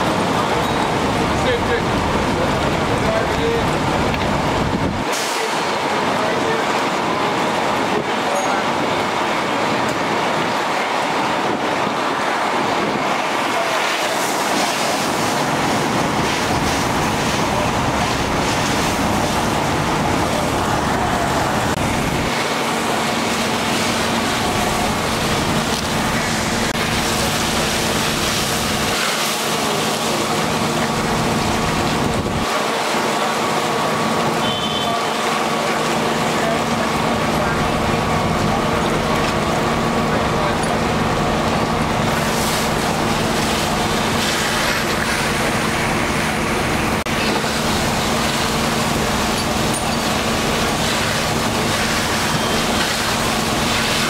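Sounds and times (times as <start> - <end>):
fire engine running: 0.0 - 54.0
water rushing from fire hose: 0.0 - 54.0.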